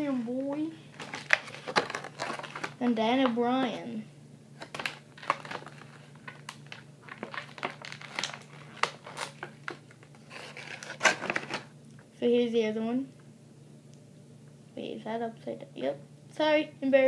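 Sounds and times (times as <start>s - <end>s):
plastic bag crinkling: 0.9s - 2.8s, 4.6s - 11.7s.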